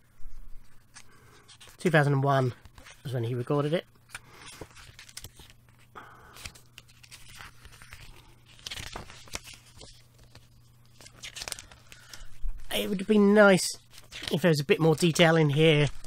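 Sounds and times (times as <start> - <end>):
paper pages rustling: 0.5 - 16.0.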